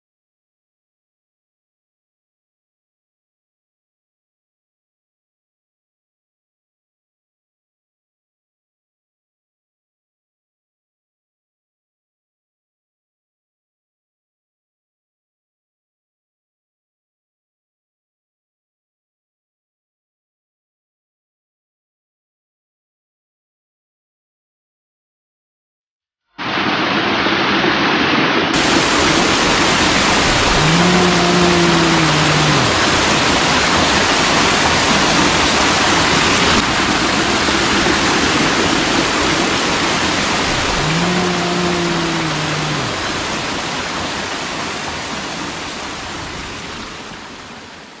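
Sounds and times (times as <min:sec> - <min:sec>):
waterfall rushing water: 0:26.4 - 0:48.0
low moan-like call: 0:30.1 - 0:33.5, 0:40.4 - 0:43.4.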